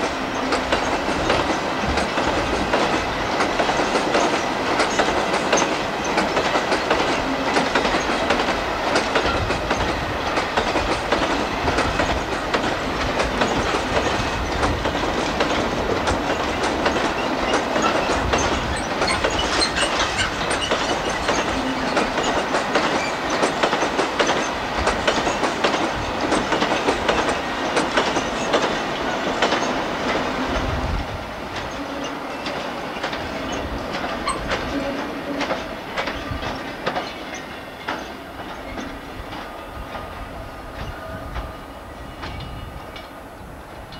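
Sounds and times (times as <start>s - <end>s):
freight wagons rolling past: 0.0s - 30.6s
wheels clattering over rail joints: 0.0s - 30.8s, 31.5s - 38.9s.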